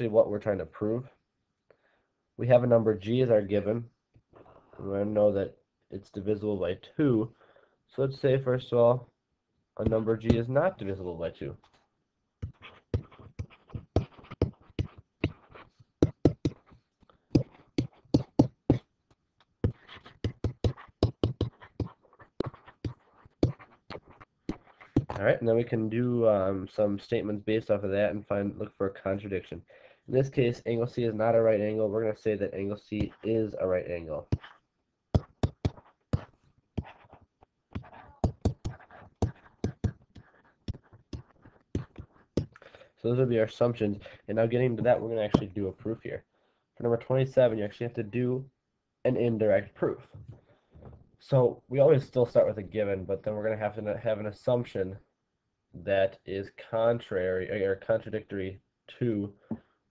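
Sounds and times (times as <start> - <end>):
stylus tapping on writing surface: 12.4 - 16.8, 17.4 - 18.8, 19.6 - 25.2, 35.2 - 42.6
faint pen scratching: 12.4 - 18.8, 19.6 - 25.2, 33.0 - 33.6, 34.2 - 34.6, 35.2 - 42.6.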